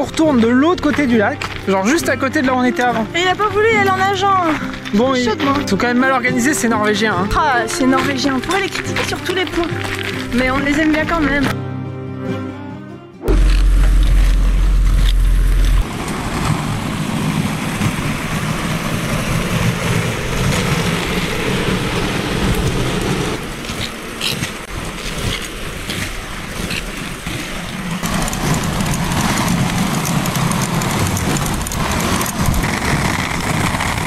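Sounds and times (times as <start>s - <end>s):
wheels rolling on asphalt: 0.0s - 11.6s, 13.3s - 34.0s
loud low rumble: 13.2s - 23.4s.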